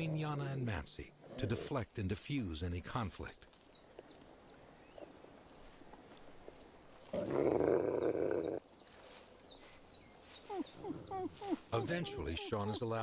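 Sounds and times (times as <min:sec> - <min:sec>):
wolf snarling: 0:07.2 - 0:08.6.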